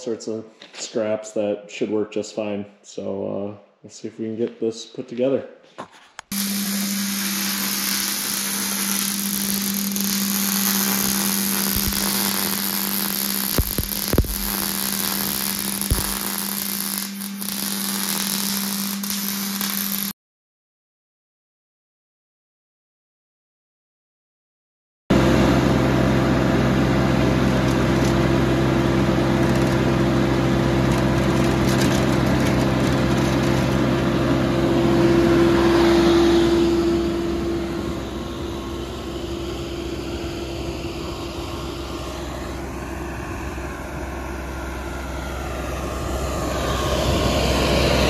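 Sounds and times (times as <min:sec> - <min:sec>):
skid steer engine running: 0:06.3 - 0:18.3, 0:25.1 - 0:48.0.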